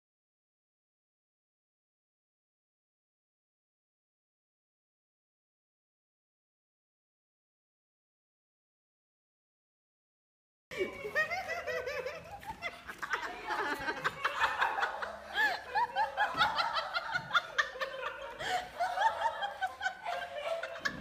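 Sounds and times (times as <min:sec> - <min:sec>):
person laughing: 0:10.7 - 0:21.0.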